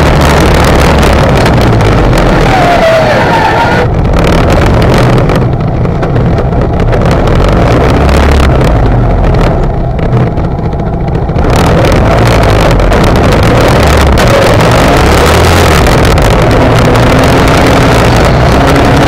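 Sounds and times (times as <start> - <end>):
atv engine rumble: 0.0 - 19.0.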